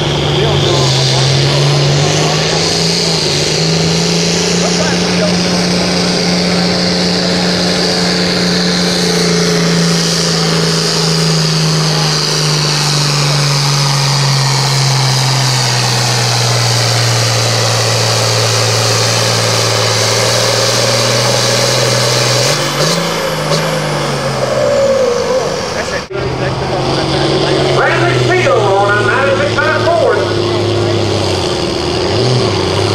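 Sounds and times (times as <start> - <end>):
diesel tractor engine at full throttle: 0.0 - 32.9.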